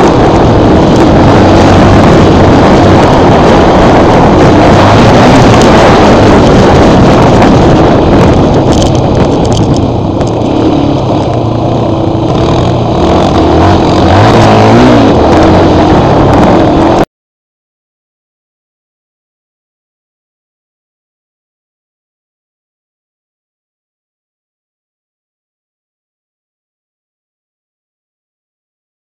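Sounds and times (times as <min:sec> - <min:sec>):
off-road vehicle engines running: 0:00.0 - 0:17.0
wind noise on microphone: 0:00.0 - 0:17.1.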